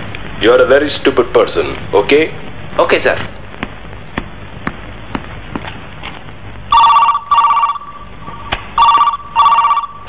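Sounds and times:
desk telephone ringing: 6.7s - 10.0s.

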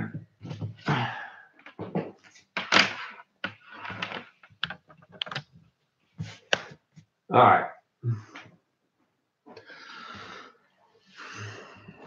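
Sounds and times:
device and cable handling: 2.6s - 5.6s.

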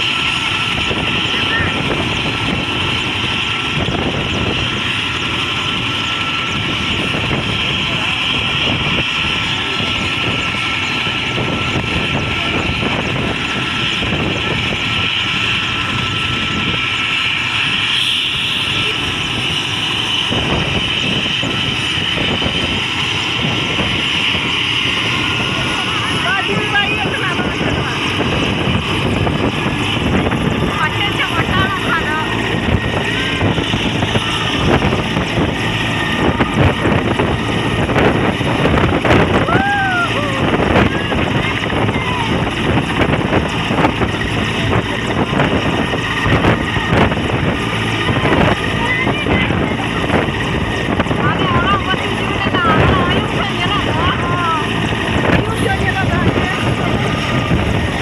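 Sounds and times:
helicopter engine whine: 0.0s - 58.0s
helicopter rotor rumble: 0.0s - 58.0s
wind buffeting microphone: 0.0s - 58.0s.

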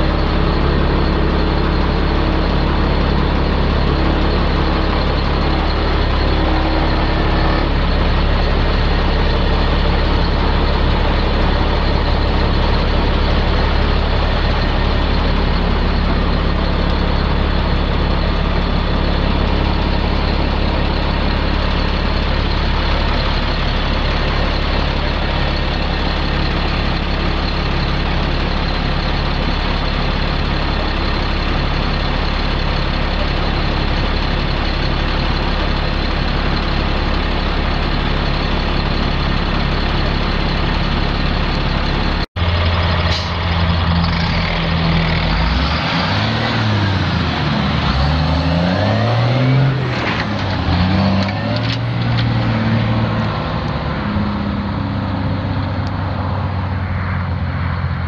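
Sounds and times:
diesel truck engine running: 0.0s - 58.0s
engine running: 0.0s - 58.0s.

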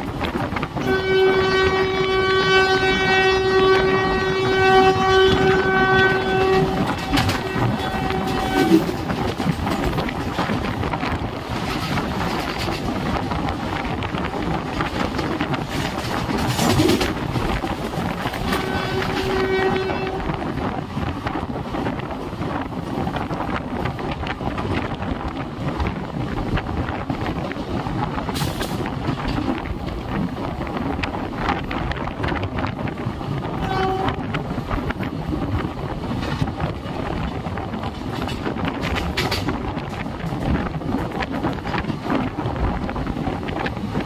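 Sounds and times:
train coaches clattering on track: 0.0s - 44.0s
train horn: 0.8s - 9.3s, 18.2s - 20.6s, 33.5s - 34.4s.

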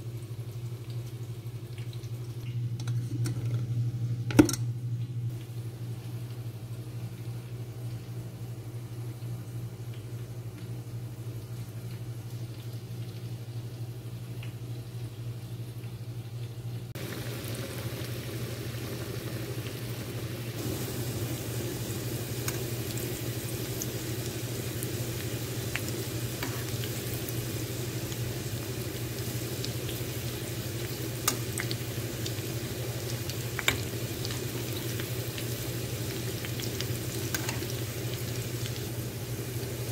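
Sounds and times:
low steady hum: 0.0s - 39.9s
onions sizzling in hot oil: 17.0s - 39.9s.

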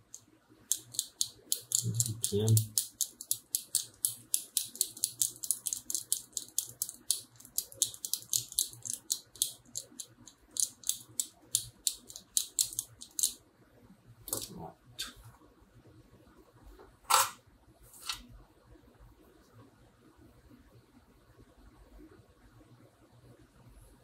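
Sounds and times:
tool scratching circuit board: 0.7s - 13.2s.

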